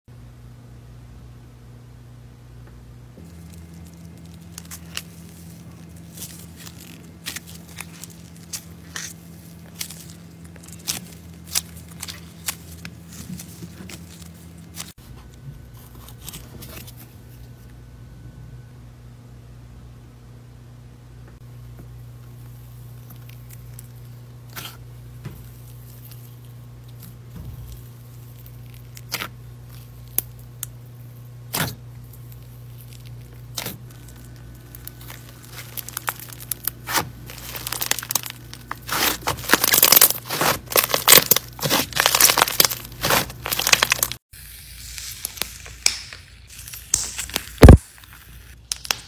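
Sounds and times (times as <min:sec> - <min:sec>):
slime tearing: 0:03.2 - 0:14.9, 0:25.4 - 0:30.8, 0:31.5 - 0:44.2, 0:44.9 - 0:49.0
slime crackling: 0:03.2 - 0:15.0, 0:25.4 - 0:44.2.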